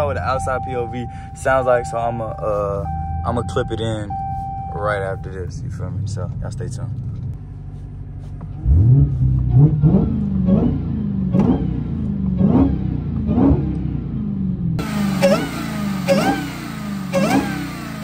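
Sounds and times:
car engine revving: 8.5s - 18.0s.

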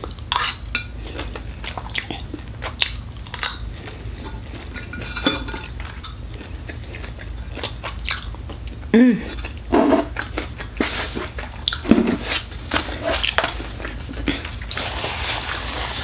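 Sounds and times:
person chewing: 0.0s - 16.0s
cutlery scraping a ceramic plate: 4.3s - 5.7s, 9.7s - 10.1s.

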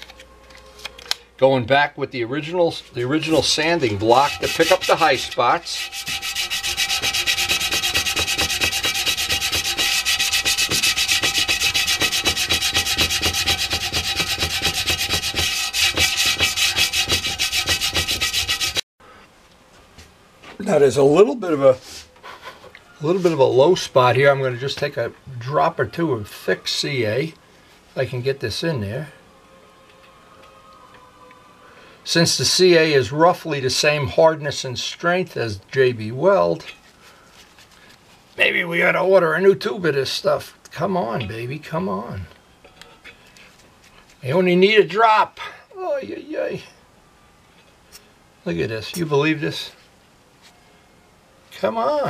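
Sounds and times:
faint steady two-tone hum: 0.0s - 52.0s
sandpaper rubbing on metal: 3.2s - 18.8s.

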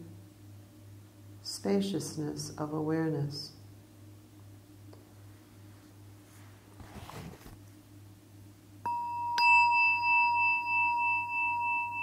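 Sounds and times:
soft rustle: 5.1s - 7.8s
meditation bell ringing: 8.8s - 12.0s.

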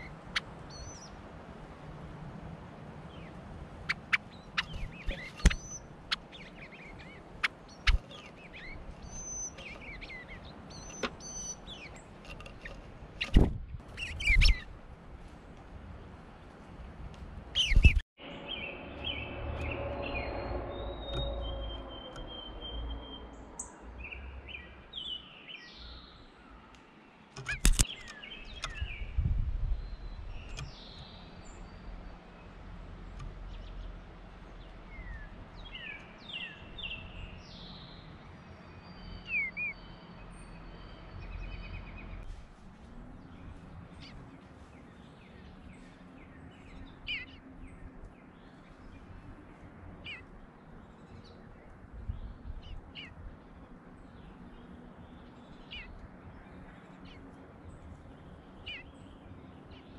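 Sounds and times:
songbirds chirping: 0.0s - 59.9s.

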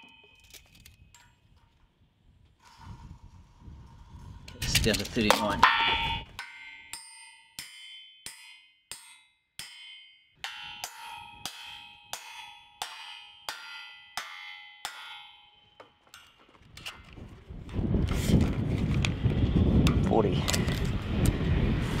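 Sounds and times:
hammer striking steel wedge: 5.3s - 16.5s
steel ringing: 5.4s - 16.5s.

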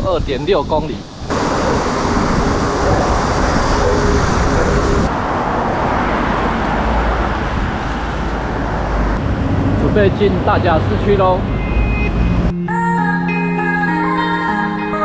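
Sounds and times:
highway traffic rushing: 0.0s - 12.6s
low rumble: 1.0s - 10.0s.

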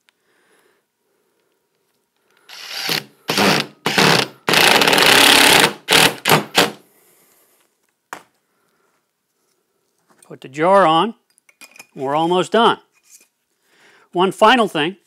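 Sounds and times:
cordless drill driving screws: 2.5s - 6.8s.

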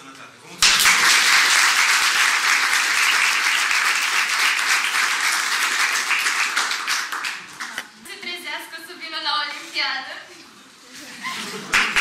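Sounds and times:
audience applauding: 0.6s - 7.9s, 11.7s - 12.0s.

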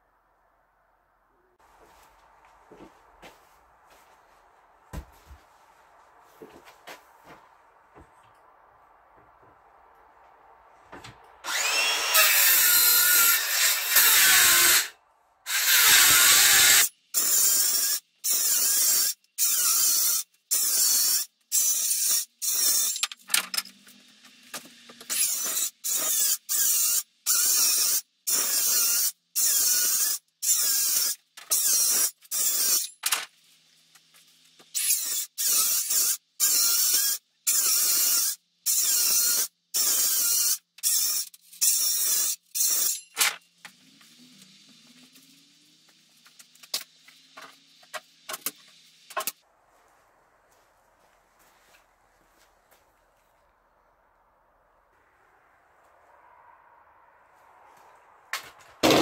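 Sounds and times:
circular saw cutting wood: 11.2s - 33.0s, 34.0s - 49.4s.

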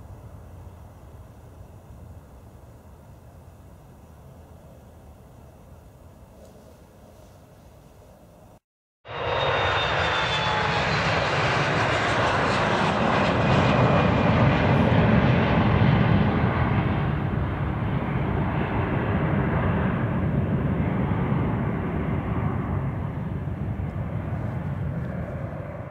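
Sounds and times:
jet engine roar: 9.0s - 25.9s.

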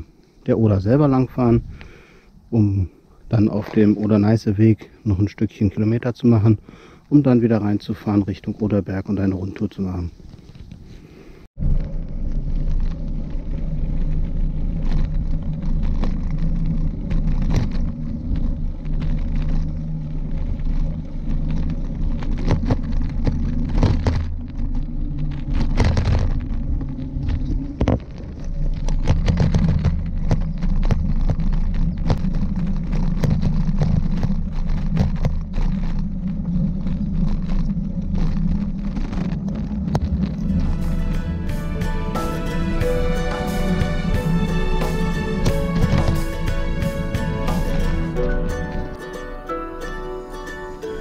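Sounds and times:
tyres rolling rumble: 0.0s - 51.0s
wind on microphone: 1.0s - 2.5s, 10.1s - 49.0s
bicycle knocks and rattles: 11.6s - 41.5s.

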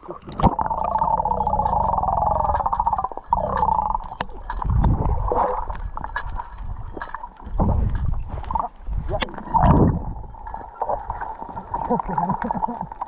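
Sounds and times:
water sloshing around camera: 0.0s - 13.0s
bubble clicks: 0.1s - 10.2s.

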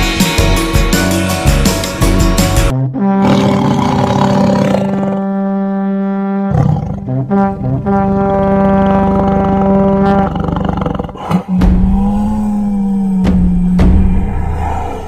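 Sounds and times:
low horn-like notes: 5.1s - 10.5s.

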